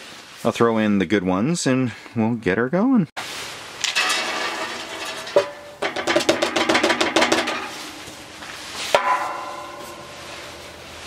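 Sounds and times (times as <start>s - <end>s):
pellets clattering into metal stove: 3.7s - 11.0s
clank against steel stove: 3.9s - 8.1s.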